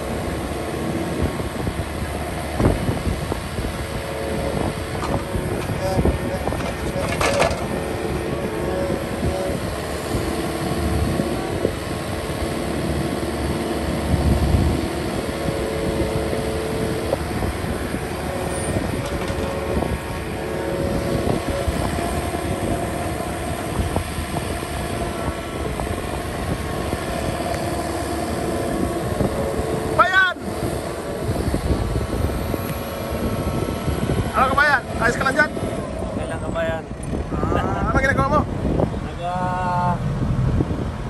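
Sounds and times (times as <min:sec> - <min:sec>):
excavator diesel engine whining: 0:00.0 - 0:41.0
excavator arm and bucket knocks: 0:06.4 - 0:07.8.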